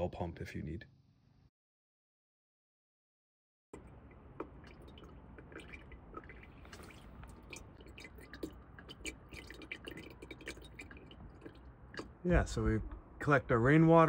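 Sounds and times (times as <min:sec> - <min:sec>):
water dripping onto screen filter: 0:03.8 - 0:12.2.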